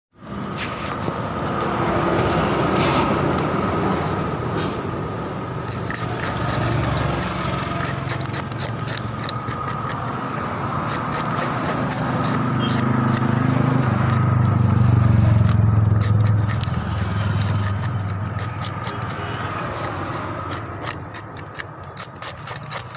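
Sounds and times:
low engine hum: 0.2s - 21.4s
knife scraping fish scales: 4.6s - 22.9s.

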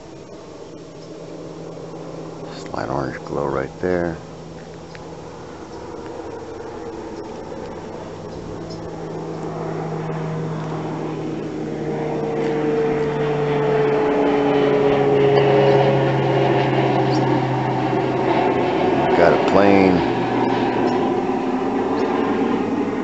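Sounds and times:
airplane engine drone: 0.0s - 23.0s.

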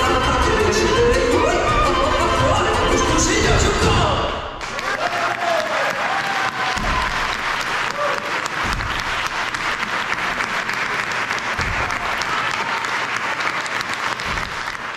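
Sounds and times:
audience applauding: 4.6s - 14.9s.

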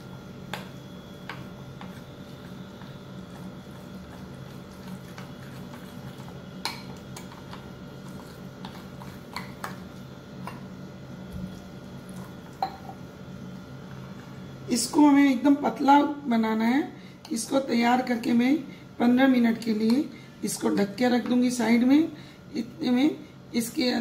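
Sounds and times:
spoon stirring batter: 0.5s - 10.6s
spoon clinking on glass: 12.6s - 13.0s.

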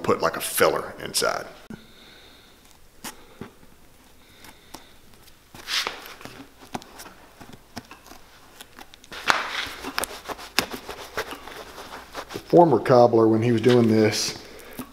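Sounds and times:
steel blade scraping leather sole: 7.8s - 12.5s.

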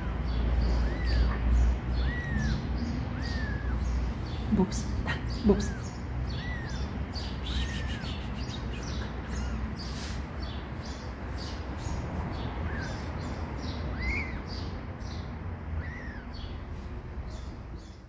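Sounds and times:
kitten mewing: 0.0s - 10.4s, 12.5s - 14.7s, 15.7s - 16.6s.

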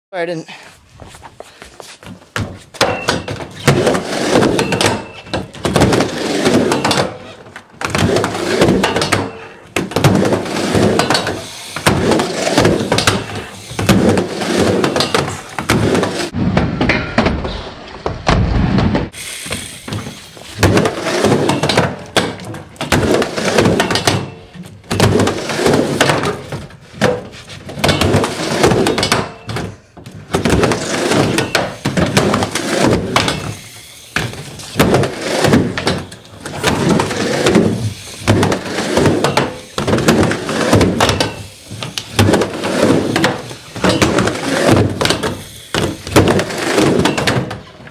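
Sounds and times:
skateboard clacks and slaps: 2.1s - 19.2s, 19.9s - 33.6s, 34.2s - 47.9s
skateboard wheels rumbling: 3.4s - 16.4s, 17.4s - 24.1s, 30.3s - 33.2s, 34.2s - 47.9s.

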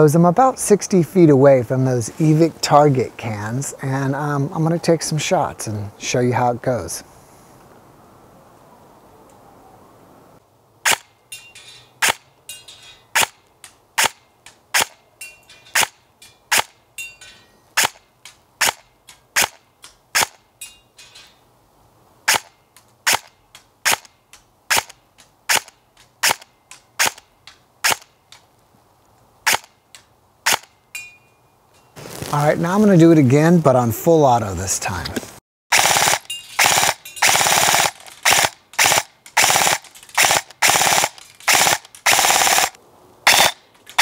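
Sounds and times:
airsoft gun shots: 10.8s - 11.1s, 17.8s - 18.0s, 18.6s - 18.8s, 19.4s - 19.6s, 35.7s - 43.6s.

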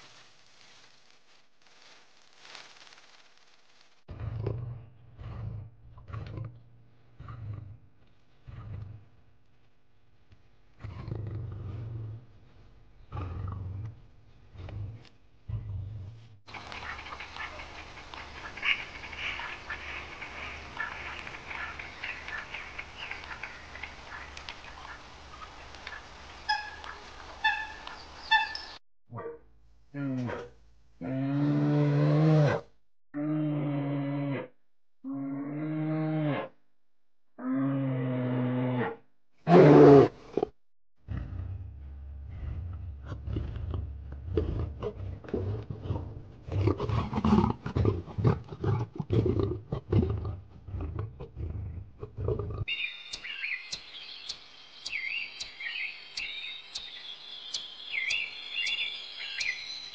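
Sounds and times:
lions snarling: 4.1s - 9.2s, 10.8s - 12.4s, 13.0s - 25.0s, 41.1s - 52.8s
cranes clicking and chirping: 16.5s - 28.8s, 52.7s - 59.7s.

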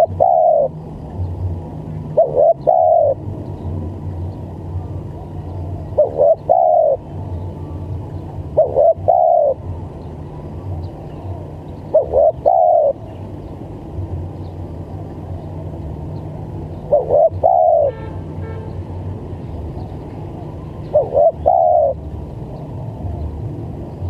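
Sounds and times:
dove cooing: 0.0s - 0.8s, 2.1s - 3.3s, 5.7s - 7.1s, 8.2s - 9.7s, 11.2s - 13.2s, 16.7s - 18.1s, 20.4s - 22.1s
steady low hum: 0.0s - 24.0s.

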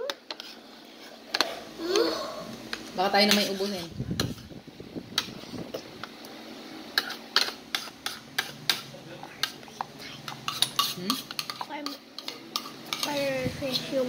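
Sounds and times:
spoon scraping ceramic bowl: 10.3s - 13.9s.

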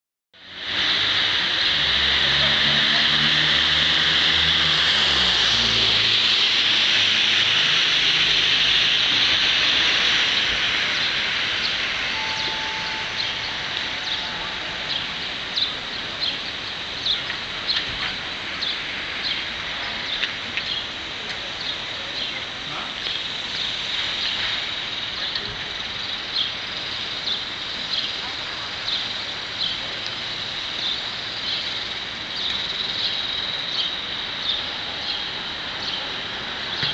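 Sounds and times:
rain hiss: 0.4s - 36.9s
vehicle engine passing: 0.5s - 16.5s
short high chirps: 12.1s - 15.2s.

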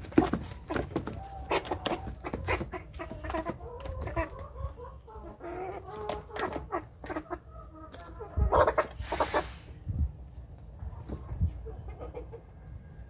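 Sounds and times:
beaks pecking at bowls: 0.0s - 8.1s
young chickens clucking: 0.0s - 13.0s.

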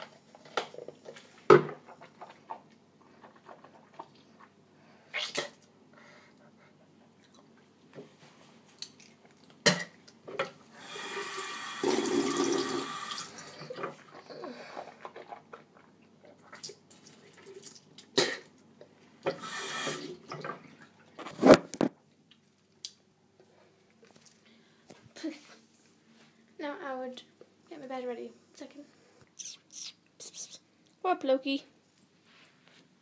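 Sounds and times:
water running from a tap: 10.8s - 13.5s.

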